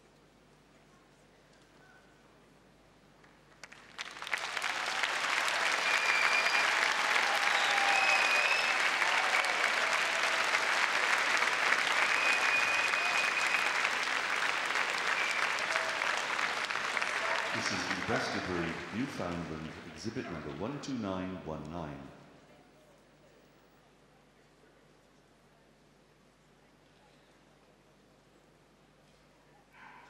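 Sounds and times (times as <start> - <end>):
audience applauding: 3.5 - 20.8.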